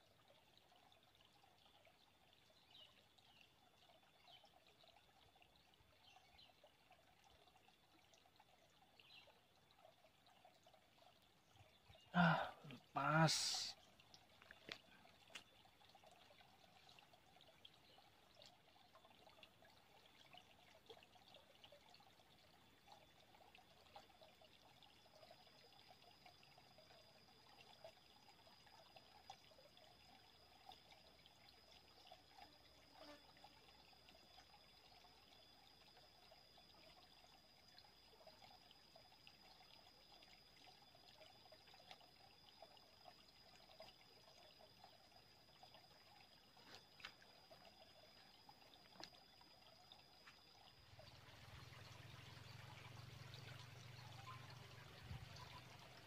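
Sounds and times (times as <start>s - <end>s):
stream trickling over rocks: 0.0s - 56.0s
thin steady high tone: 25.2s - 56.0s.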